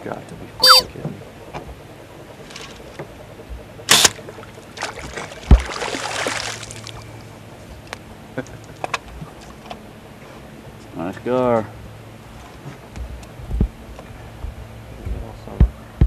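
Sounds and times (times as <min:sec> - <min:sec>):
fish thrashing splash: 0:02.4 - 0:02.8, 0:04.7 - 0:07.1.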